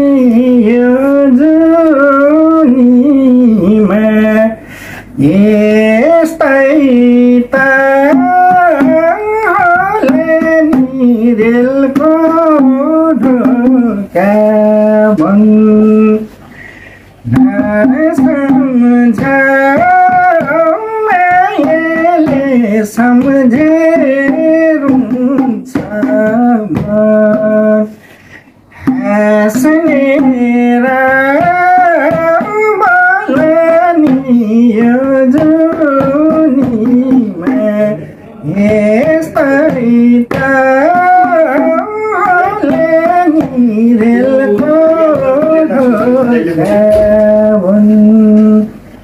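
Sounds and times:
man singing folk song: 0.0s - 16.4s, 17.2s - 48.8s
hand drum strokes: 17.2s - 27.9s, 28.8s - 48.8s.

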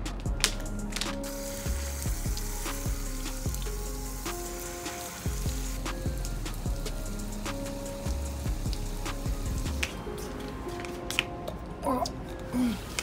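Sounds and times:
background music: 0.0s - 13.0s
hose nozzle spraying water: 0.4s - 9.9s.

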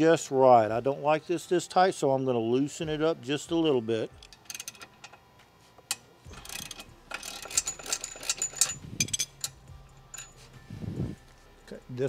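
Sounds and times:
ratchet wrench clicking: 4.2s - 5.2s, 6.3s - 10.4s.

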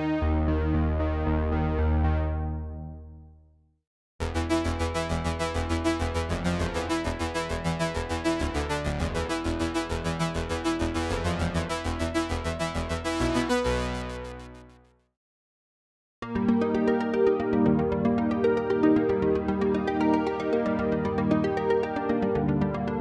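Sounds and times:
synthesizer arpeggio: 4.2s - 14.7s.

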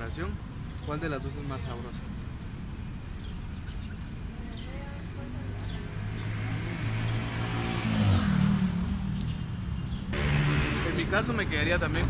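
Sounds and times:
vehicle engine rumbling: 8.9s - 12.0s.

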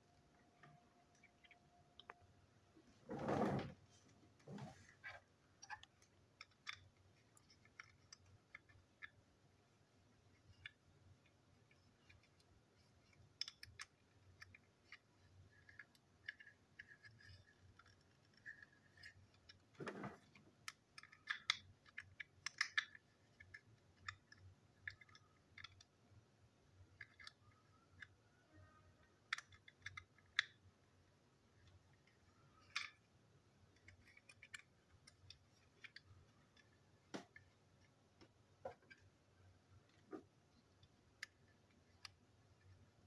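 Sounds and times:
plastic toy parts clicking: 5.6s - 9.3s, 10.2s - 30.7s, 31.5s - 39.2s, 39.8s - 42.9s.

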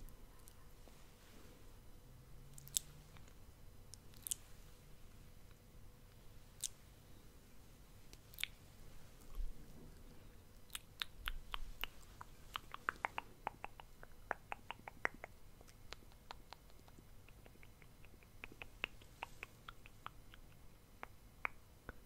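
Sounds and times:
mouth clicks and lip smacks: 2.5s - 4.5s, 6.1s - 6.8s, 8.1s - 9.5s, 10.6s - 22.0s.

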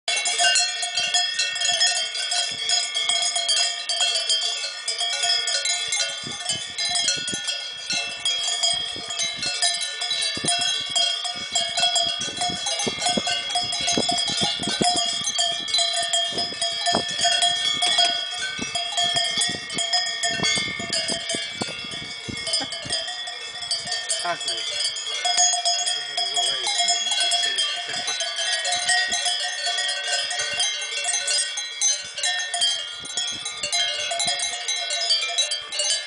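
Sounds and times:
cowbells clanking and ringing: 0.1s - 36.0s.

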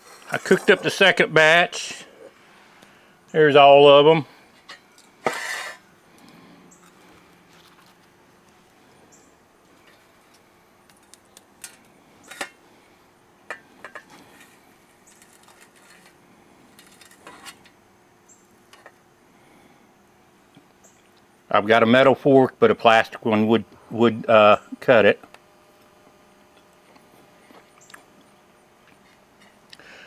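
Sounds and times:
fork scraping on plate: 5.2s - 5.9s.

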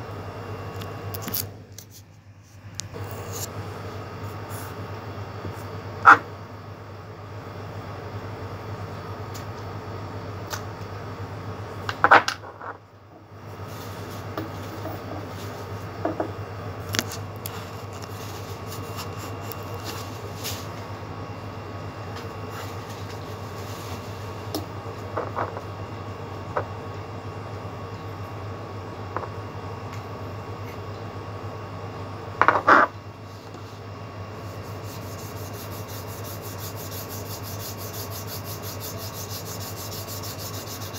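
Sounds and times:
steady low hum: 0.0s - 40.9s
paintbrush rubbing on paper: 17.5s - 20.2s, 34.4s - 40.9s.

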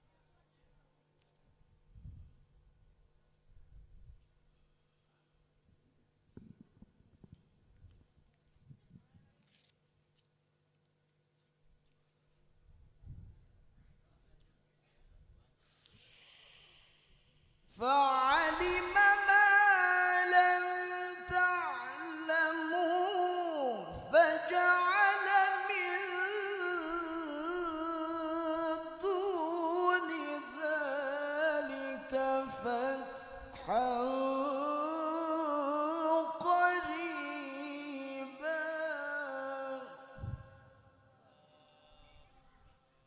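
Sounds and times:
man reciting melodically over loudspeaker: 17.7s - 42.1s.

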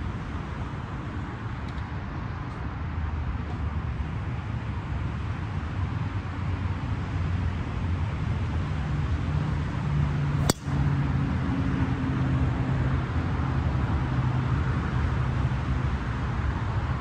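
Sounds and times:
golf club striking ball: 10.4s - 10.9s.

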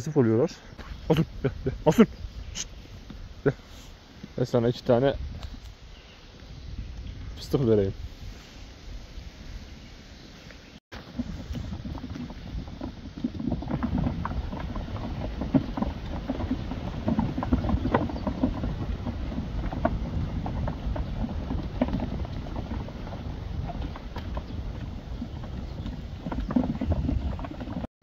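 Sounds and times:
grass rustling: 0.8s - 27.9s
sheep hooves clicking: 11.0s - 27.9s.

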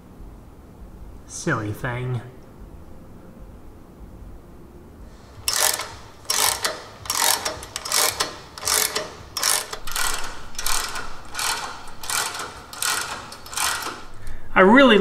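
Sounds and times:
ratchet wrench clicking: 5.4s - 14.3s.

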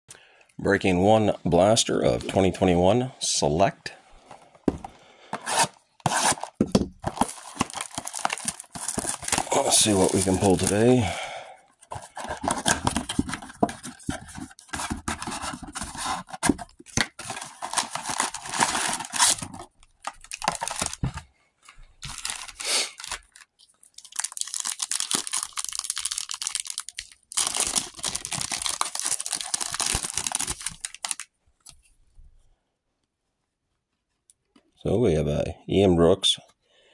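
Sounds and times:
card packs crinkling and ripping: 5.4s - 21.2s, 22.0s - 31.3s.

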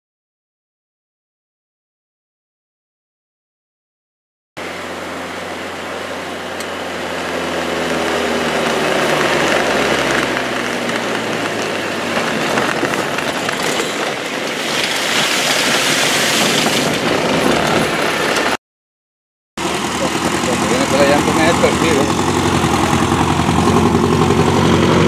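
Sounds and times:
vehicle engine hum: 4.6s - 18.6s, 19.6s - 25.0s
tyres rolling over mud and gravel: 7.7s - 18.6s, 19.6s - 25.0s.

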